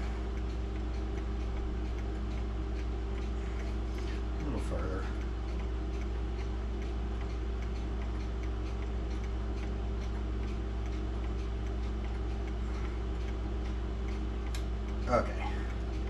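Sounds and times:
low hum: 0:00.0 - 0:16.0
pendulum clocks ticking: 0:00.0 - 0:16.0
sharp click: 0:13.2 - 0:15.1.

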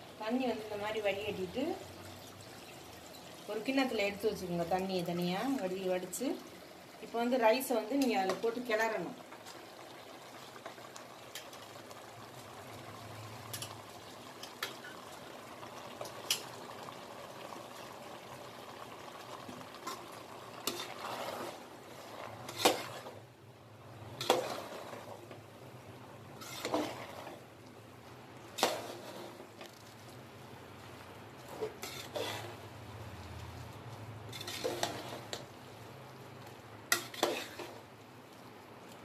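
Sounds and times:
food bubbling: 0:00.0 - 0:39.0
ladle scraping and knocking pot: 0:20.6 - 0:23.2, 0:24.2 - 0:25.4, 0:26.4 - 0:27.4, 0:28.5 - 0:29.5, 0:31.4 - 0:32.6, 0:34.3 - 0:35.5, 0:36.9 - 0:37.8.

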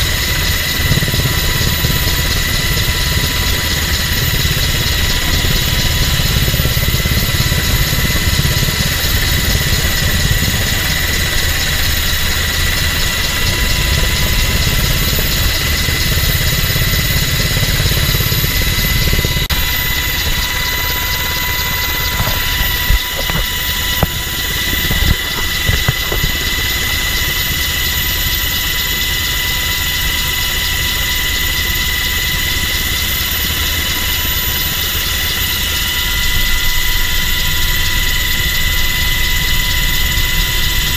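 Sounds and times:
helicopter rotor and engine noise: 0:00.0 - 0:40.9
high whine: 0:00.0 - 0:40.9.

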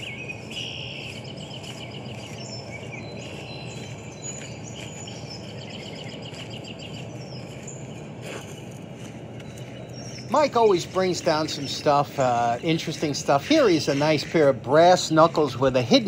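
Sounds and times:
birds chirping and trilling: 0:00.0 - 0:16.0
low background rumble: 0:00.0 - 0:16.0.

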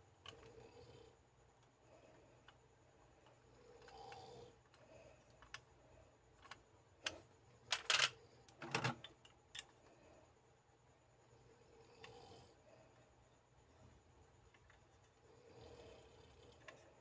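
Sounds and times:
plastic toy clacking down: 0:06.4 - 0:09.0
plastic toy clicks and knocks: 0:06.4 - 0:09.7.

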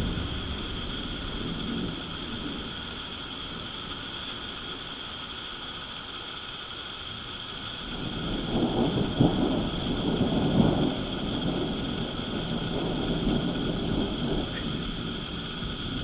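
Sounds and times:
thunder cracks: 0:00.0 - 0:04.8, 0:07.8 - 0:16.0
rolling thunder rumble: 0:00.0 - 0:06.1, 0:06.9 - 0:16.0.

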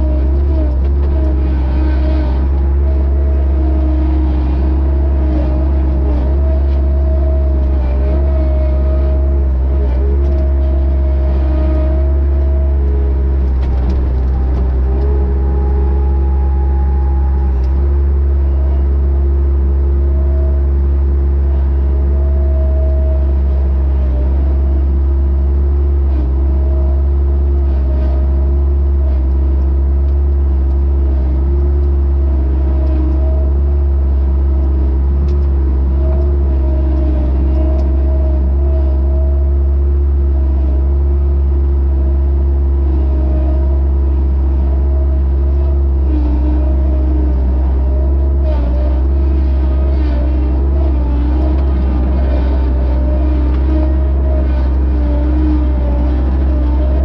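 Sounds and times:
loader engine humming: 0:00.0 - 0:57.0.

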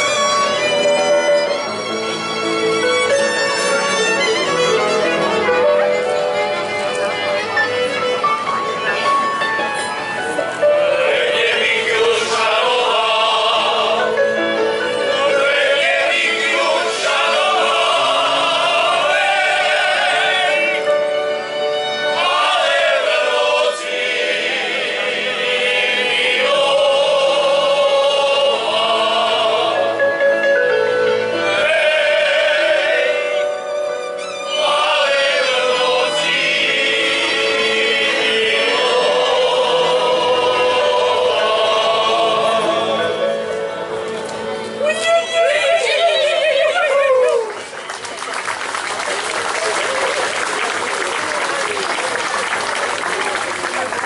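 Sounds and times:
men's choir singing: 0:10.6 - 0:21.0, 0:22.1 - 0:30.0, 0:31.4 - 0:33.6, 0:34.5 - 0:43.3.

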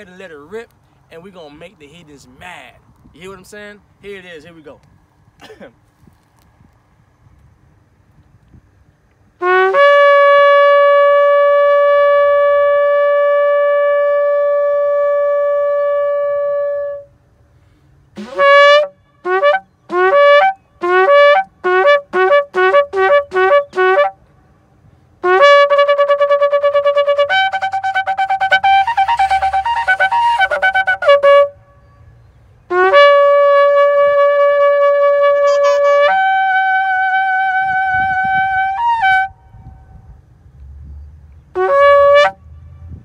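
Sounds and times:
horn blasts: 0:09.4 - 0:17.1, 0:18.1 - 0:24.2, 0:25.2 - 0:32.1, 0:32.7 - 0:39.8, 0:41.5 - 0:43.0.

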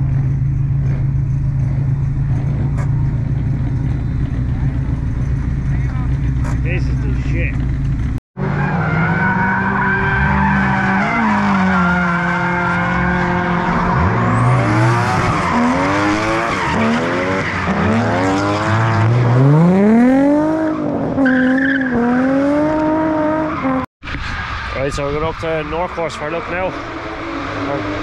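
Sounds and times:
car engines revving: 0:00.0 - 0:28.0
tyre screech: 0:08.5 - 0:19.1.

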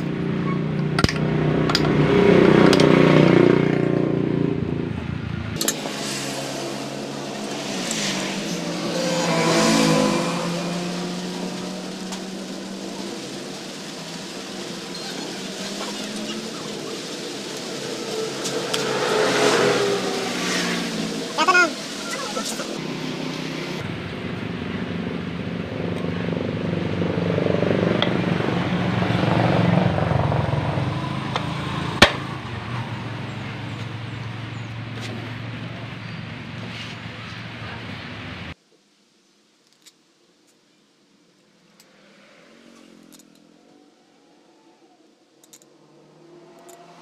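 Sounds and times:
vehicle engine running: 0:00.0 - 0:38.6.

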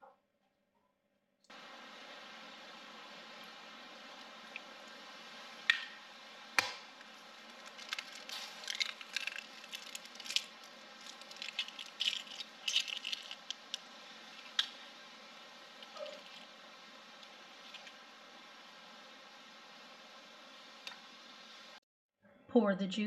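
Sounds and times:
eggs cracking on bowl edge: 0:06.6 - 0:13.9.

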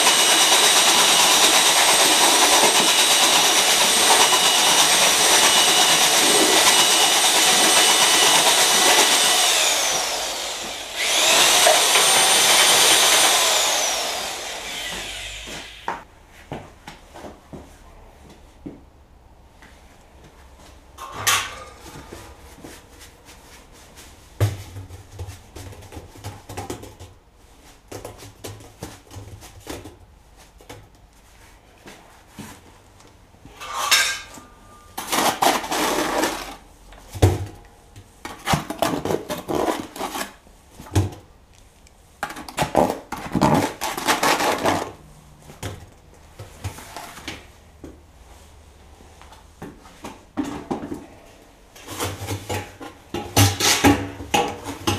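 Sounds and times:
trowel scraping metal bucket: 0:33.5 - 0:36.6, 0:51.8 - 0:54.9.

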